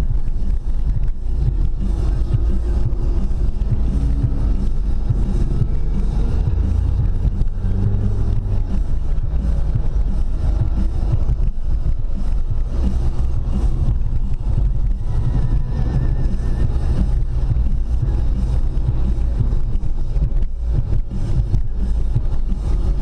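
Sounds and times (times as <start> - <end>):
car engine and tyre rumble: 0.0 - 23.0.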